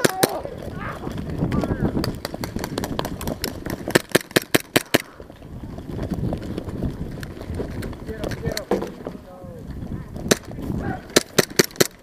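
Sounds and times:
airsoft guns cracking: 0:00.0 - 0:05.4, 0:10.3 - 0:12.0.

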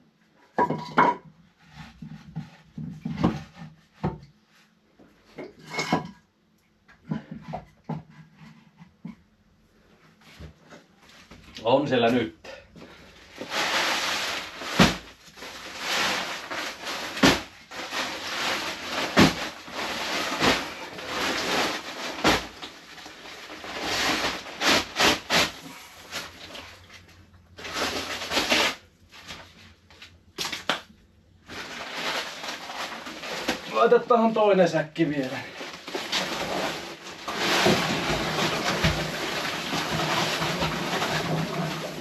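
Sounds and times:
paper sack rustling and crinkling: 0:12.9 - 0:30.8, 0:31.4 - 0:42.0.

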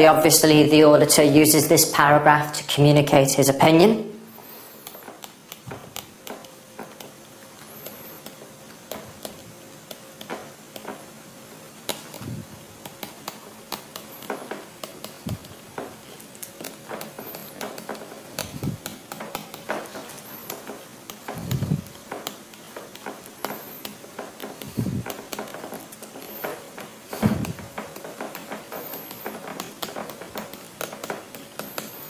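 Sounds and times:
pen tip tapping and scratching: 0:04.8 - 0:11.0, 0:11.8 - 0:32.0
soft low thumps: 0:21.4 - 0:21.9, 0:24.7 - 0:25.1, 0:27.2 - 0:27.8.

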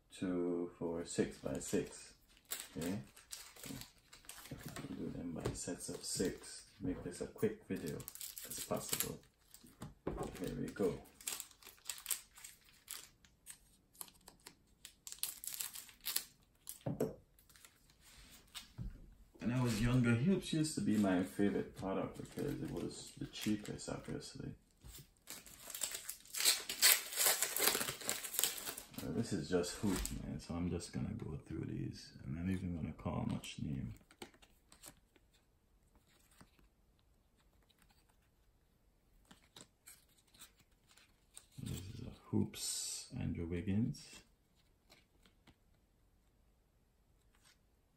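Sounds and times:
plastic wrappers crinkling: 0:01.4 - 0:05.0, 0:07.7 - 0:18.6, 0:20.8 - 0:24.1, 0:24.9 - 0:30.2
trading cards flipped by hand: 0:34.0 - 0:35.0.

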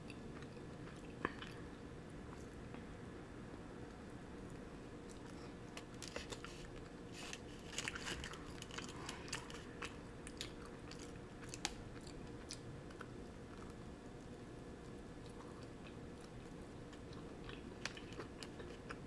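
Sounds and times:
faint steady hum: 0:00.0 - 0:19.0
chewing and crunching bagel: 0:04.0 - 0:19.0.

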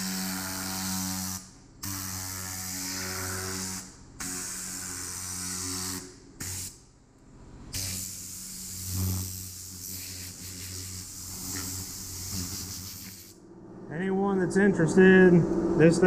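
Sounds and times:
steady low hum: 0:00.0 - 0:16.0
air blow gun hissing: 0:07.7 - 0:13.4.

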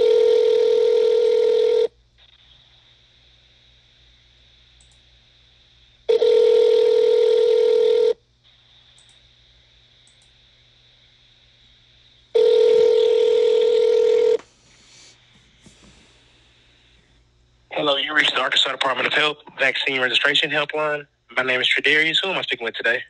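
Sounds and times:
telephone ringback tone: 0:00.0 - 0:01.9, 0:06.1 - 0:08.2, 0:12.4 - 0:14.4.

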